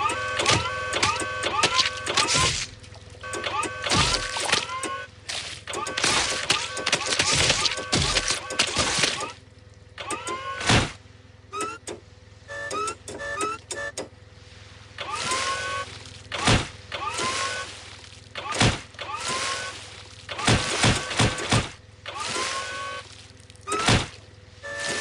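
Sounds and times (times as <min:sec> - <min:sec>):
low steady hum: 0:00.0 - 0:25.0
heavy cartoon thud: 0:16.4 - 0:16.8, 0:23.8 - 0:24.2.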